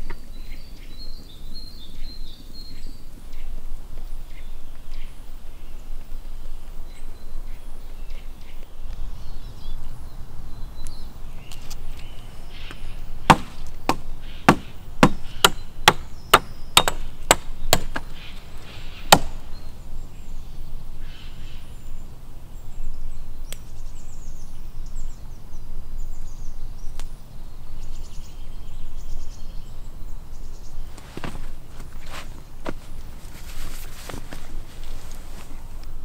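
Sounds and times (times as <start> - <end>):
wood chopping with a blade: 12.7 - 18.2, 19.1 - 19.4.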